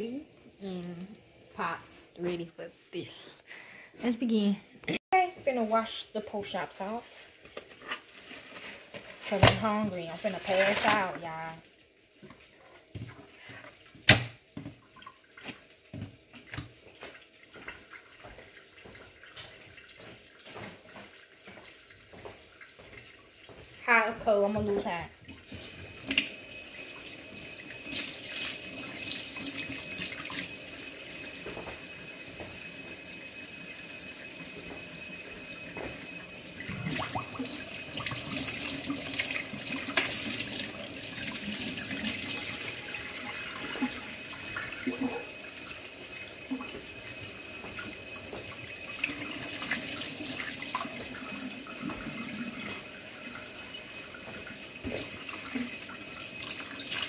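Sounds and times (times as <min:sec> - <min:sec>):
faucet running into a metal sink: 0:25.4 - 0:57.0
water splashing: 0:35.7 - 0:52.9.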